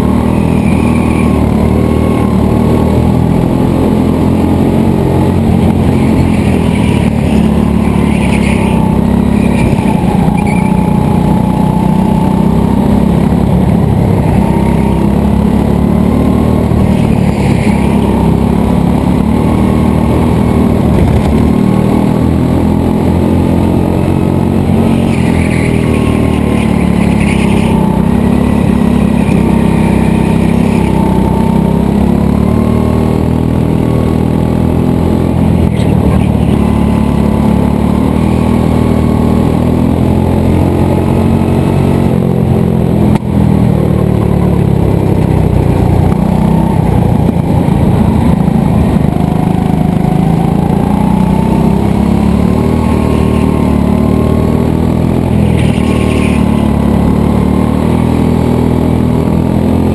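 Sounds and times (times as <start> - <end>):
go-kart engine racing: 0.0 - 59.9.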